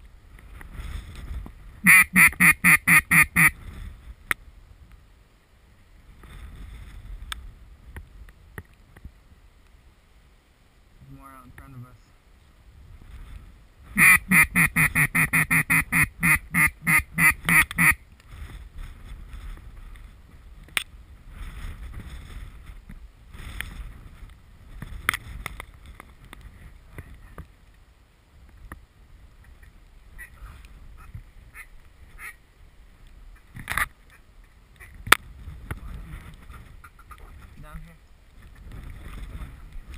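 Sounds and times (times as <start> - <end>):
duck call quacks: 1.8 - 3.6, 14.0 - 18.0, 31.0 - 32.4
wind on microphone: 6.0 - 9.2, 12.6 - 27.6, 33.1 - 39.9.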